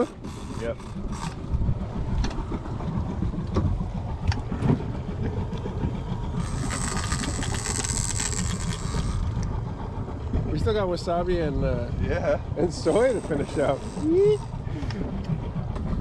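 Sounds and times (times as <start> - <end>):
low rumble: 0.0 - 16.0
water noise: 0.0 - 16.0
wind: 0.0 - 16.0
high buzz with fine ticking: 6.4 - 9.4, 12.9 - 14.5.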